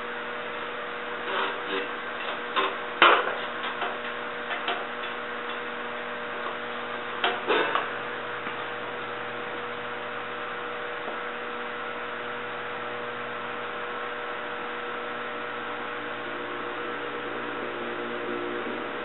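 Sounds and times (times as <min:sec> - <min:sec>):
steady background hum: 0:00.0 - 0:19.0
welding torch flame hissing: 0:00.4 - 0:11.1.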